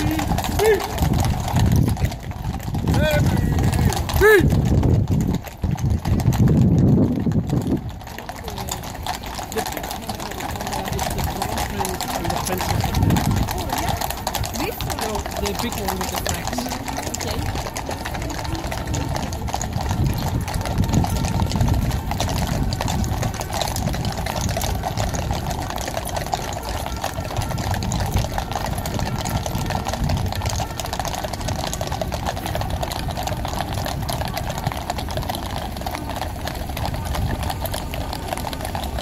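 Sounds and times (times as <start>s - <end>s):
hooves clattering on pavement: 0.0s - 39.0s
voices murmuring: 0.0s - 39.0s.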